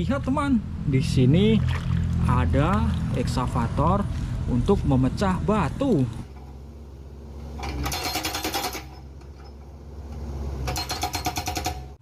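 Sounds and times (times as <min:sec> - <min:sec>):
excavator engine running: 0:00.0 - 0:12.0
hydraulic breaker pounding rock: 0:07.5 - 0:09.6, 0:10.6 - 0:12.0.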